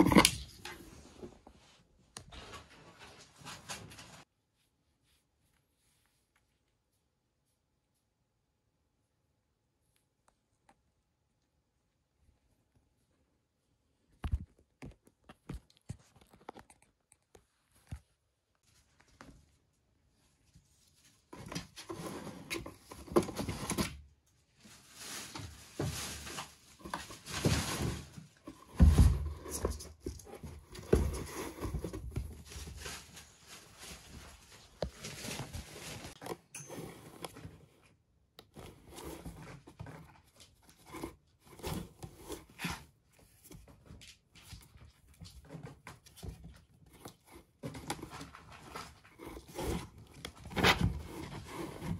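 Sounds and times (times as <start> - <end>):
kitten scratching cardboard box: 26.8 - 33.0, 38.5 - 43.8, 45.4 - 51.9.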